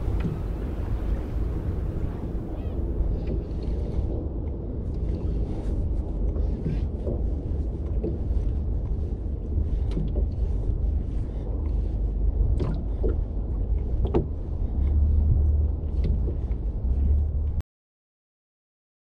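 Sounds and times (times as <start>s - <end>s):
low rumble of wind and water: 0.0s - 17.6s.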